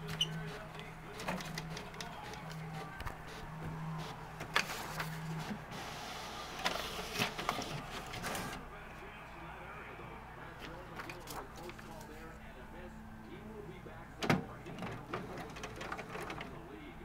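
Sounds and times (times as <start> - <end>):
printer motor humming: 0.0 - 8.6, 14.2 - 16.8
paper rustling: 4.0 - 8.6.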